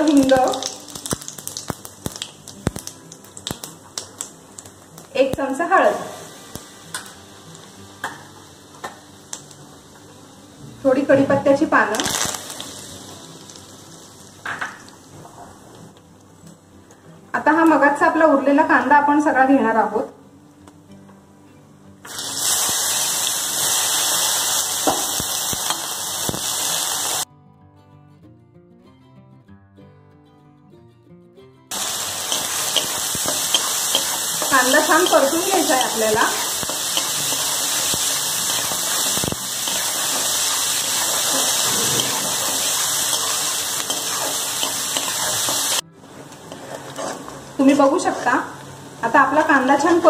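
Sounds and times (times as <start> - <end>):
onions sizzling in hot oil: 0.0 - 15.7, 22.1 - 27.3, 31.7 - 50.0
soft background music: 0.0 - 50.0
spatula scraping pan: 40.1 - 45.8, 46.5 - 47.3.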